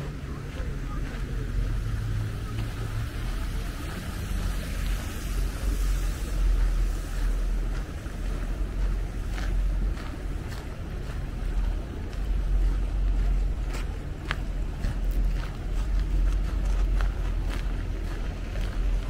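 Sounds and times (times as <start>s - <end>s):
traffic rumble: 0.0s - 19.0s
even hiss: 1.6s - 8.8s.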